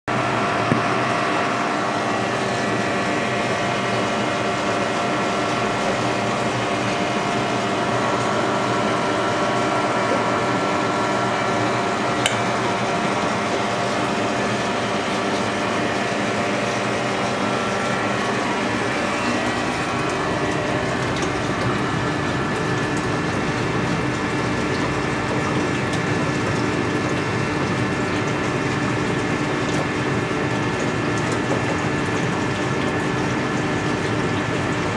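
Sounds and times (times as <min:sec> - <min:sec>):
aquarium pump hum: 0:00.1 - 0:34.9
water noise: 0:00.1 - 0:34.9.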